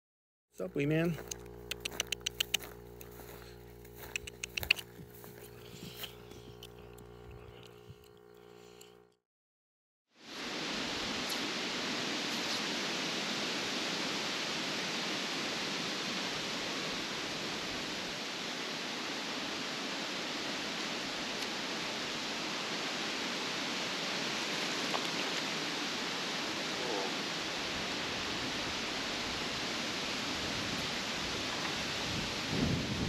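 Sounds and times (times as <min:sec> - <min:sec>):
creek water rushing over stones: 0:10.2 - 0:32.5.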